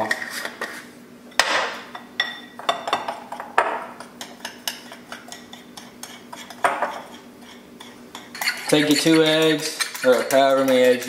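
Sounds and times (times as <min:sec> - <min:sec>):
utensil scraping bowl: 0:03.9 - 0:11.0
utensil clinking on mixing bowl: 0:04.0 - 0:11.0.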